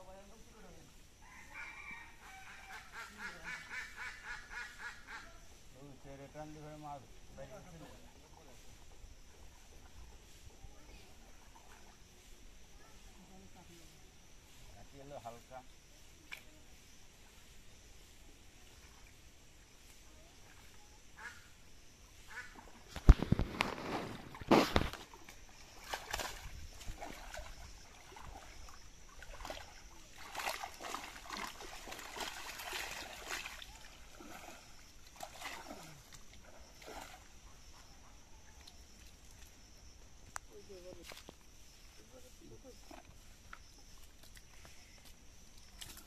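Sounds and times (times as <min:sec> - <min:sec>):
water splashing: 0:22.2 - 0:37.7
water dripping from net: 0:25.8 - 0:37.1.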